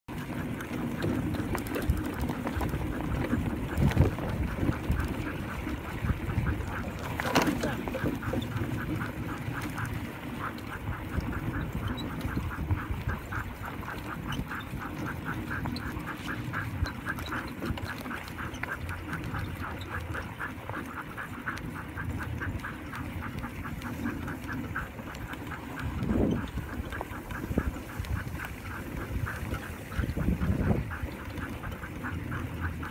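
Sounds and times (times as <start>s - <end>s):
wheels rumbling on snow: 0.1s - 32.9s
rhythmic cart squeak: 8.0s - 20.9s.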